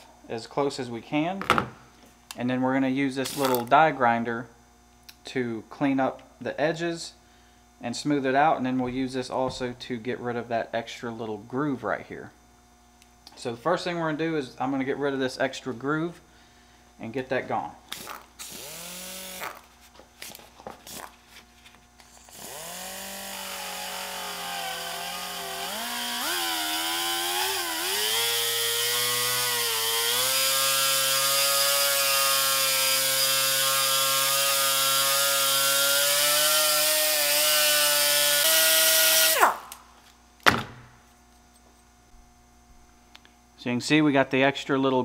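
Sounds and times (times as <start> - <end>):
die grinder whining: 17.9 - 19.7, 22.2 - 39.6.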